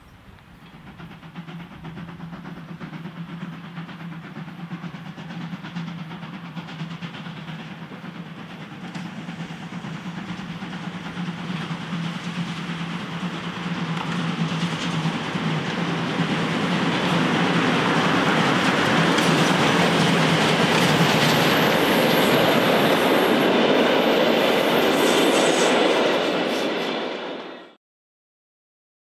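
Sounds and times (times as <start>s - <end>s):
steam train approaching: 0.0s - 27.8s.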